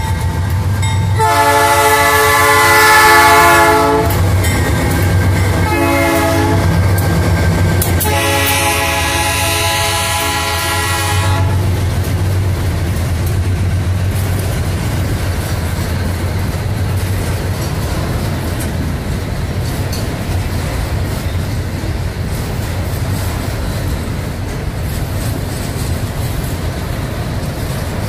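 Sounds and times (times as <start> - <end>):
train wheels rumbling on rails: 0.0 - 28.0
locomotive air horn: 1.2 - 4.2, 5.5 - 6.8, 8.0 - 11.8
wheels clicking on rails: 2.4 - 28.0.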